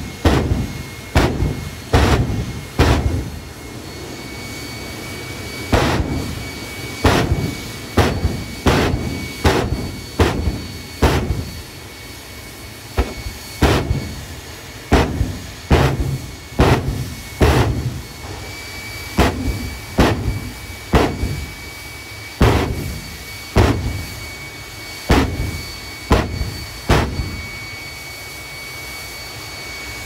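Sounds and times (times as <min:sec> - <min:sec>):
afterburner booms: 0:00.0 - 0:03.6, 0:05.7 - 0:11.8, 0:12.9 - 0:21.7, 0:22.4 - 0:24.2, 0:25.1 - 0:27.6
jet engine high whine: 0:00.0 - 0:30.0.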